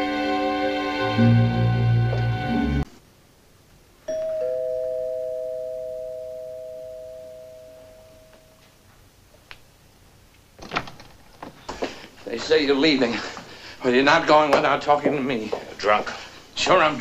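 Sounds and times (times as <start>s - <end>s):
two-tone doorbell chime: 4.1s - 8.6s
clicks and knocks: 10.6s - 11.8s.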